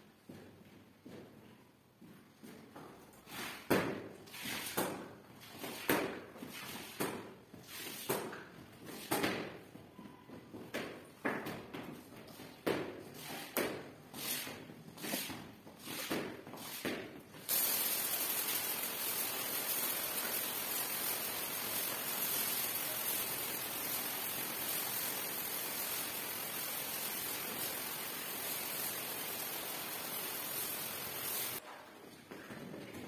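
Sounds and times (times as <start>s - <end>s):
squeegee scraping wet tiles: 3.2s - 4.8s, 13.1s - 31.6s
water spraying onto tiles: 17.5s - 31.6s.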